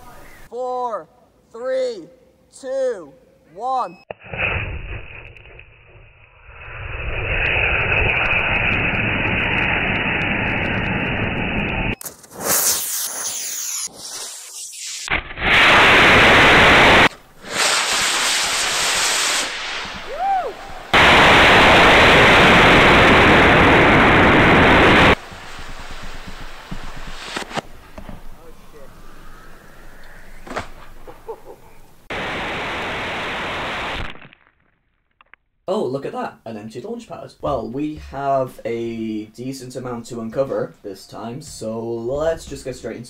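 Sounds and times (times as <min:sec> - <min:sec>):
rocket motors roaring: 0:06.4 - 0:12.0, 0:19.5 - 0:25.2
distorted rushing air noise: 0:06.6 - 0:34.1.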